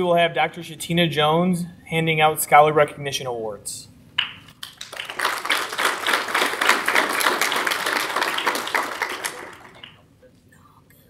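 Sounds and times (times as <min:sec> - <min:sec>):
audience applauding: 0:04.6 - 0:10.0.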